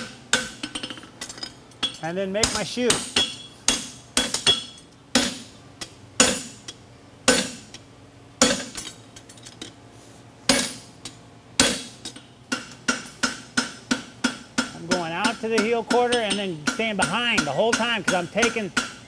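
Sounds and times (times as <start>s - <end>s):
hammer ringing on anvil: 12.9s - 19.0s.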